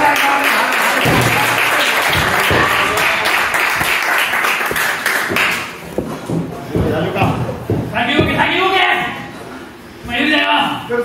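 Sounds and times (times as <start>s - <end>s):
audience clapping: 0.0s - 5.9s.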